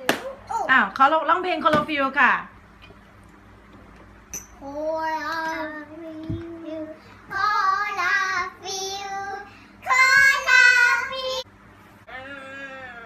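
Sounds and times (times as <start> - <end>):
girls singing: 7.3 - 11.4.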